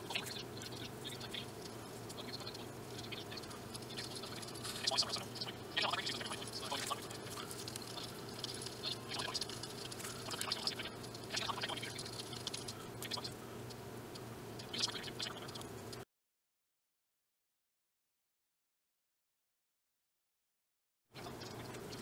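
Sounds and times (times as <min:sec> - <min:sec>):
steady low hum: 0:00.0 - 0:16.0.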